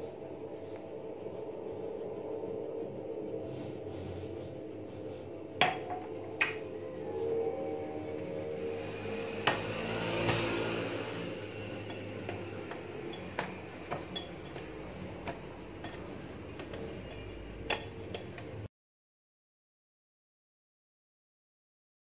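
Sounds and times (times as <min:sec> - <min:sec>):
electric hand mixer running: 0:08.4 - 0:15.0
beaters clicking against glass bowl: 0:11.8 - 0:18.5.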